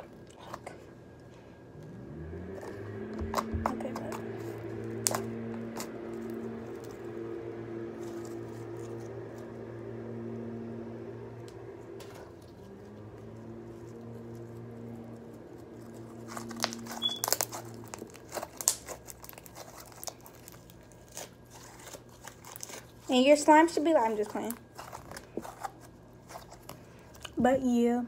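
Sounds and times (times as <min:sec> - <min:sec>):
steady low hum: 0:00.0 - 0:28.0
slime squishing: 0:02.5 - 0:07.1, 0:12.0 - 0:27.4
wet crackles and pops: 0:15.9 - 0:22.8.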